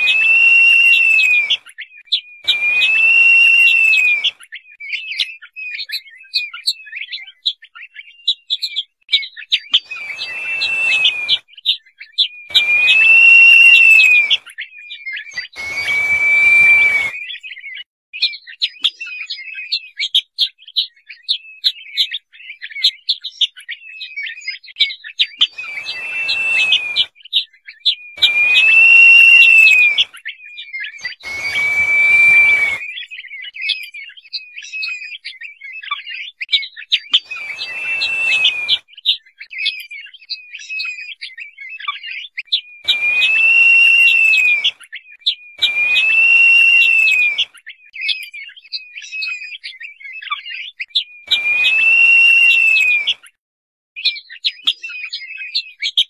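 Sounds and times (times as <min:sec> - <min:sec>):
rapid high chirping: 0:00.0 - 0:01.6, 0:09.8 - 0:11.4, 0:12.5 - 0:14.4, 0:15.4 - 0:17.2, 0:25.5 - 0:27.1, 0:28.2 - 0:30.0, 0:31.0 - 0:32.9, 0:37.2 - 0:38.8, 0:42.9 - 0:44.7, 0:45.6 - 0:47.4, 0:51.3 - 0:53.1
bird whistles rising and falling: 0:00.0 - 0:08.7, 0:09.6 - 0:18.3, 0:25.2 - 0:35.2, 0:37.0 - 0:39.8, 0:40.5 - 0:53.3.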